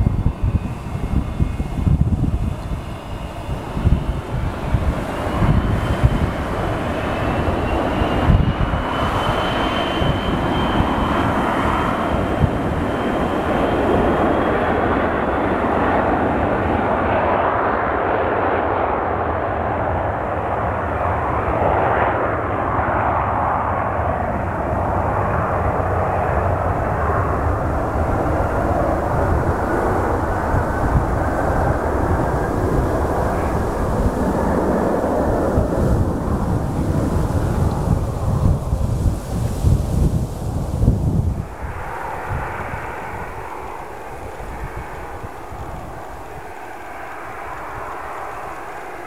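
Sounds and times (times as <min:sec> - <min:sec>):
high engine whine: 0:00.0 - 0:49.0
jet engines rumbling: 0:00.0 - 0:49.0.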